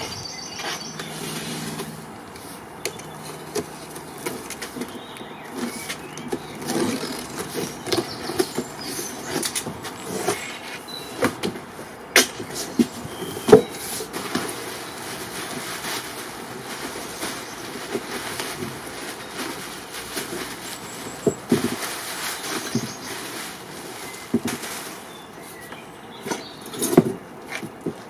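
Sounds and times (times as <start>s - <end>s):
cardboard flaps scraping: 3.2s - 11.7s, 12.3s - 25.7s.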